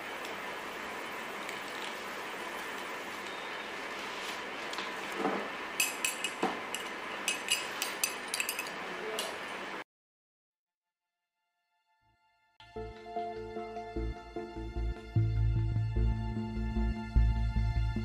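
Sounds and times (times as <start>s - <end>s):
room hum: 0.0s - 9.8s.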